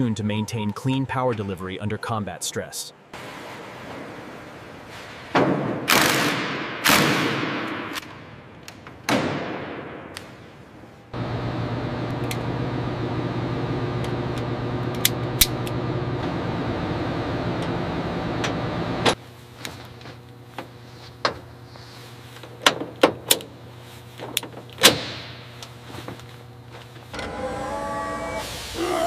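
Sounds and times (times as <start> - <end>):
steady mechanical hum: 10.1 - 29.0.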